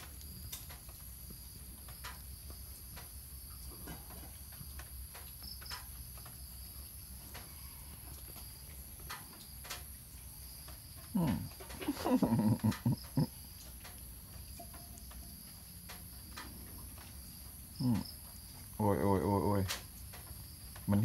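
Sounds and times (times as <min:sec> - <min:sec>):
crickets chirring: 0:00.0 - 0:21.0.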